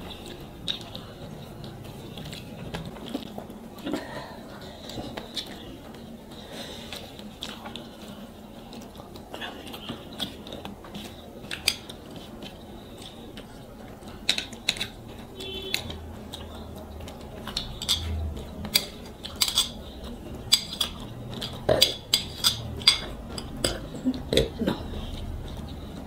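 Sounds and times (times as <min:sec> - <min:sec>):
metal spoon clinking on a plate: 0:17.8 - 0:19.8, 0:20.5 - 0:23.9.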